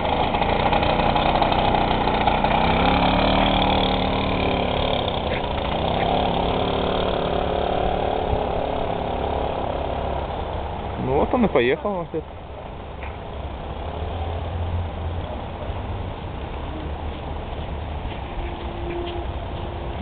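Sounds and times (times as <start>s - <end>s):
moped engine pulling away: 0.0s - 12.3s.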